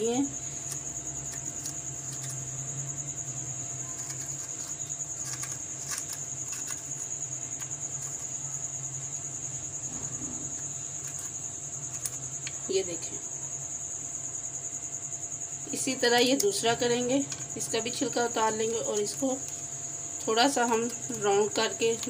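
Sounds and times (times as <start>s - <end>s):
cricket trilling: 0.0s - 22.0s
spoon scraping a gourd: 0.3s - 2.7s, 3.6s - 8.4s, 10.2s - 12.2s.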